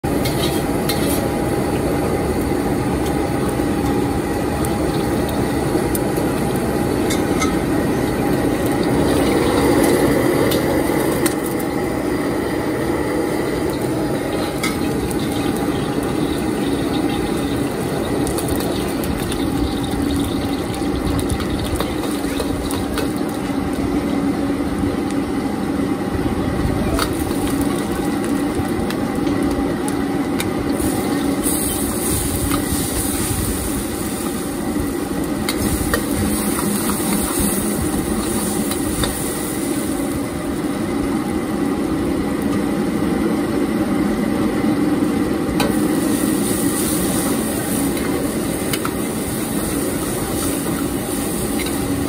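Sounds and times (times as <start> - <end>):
gas burner roaring: 0.0 - 52.0
ladle scraping a wok: 0.2 - 1.3.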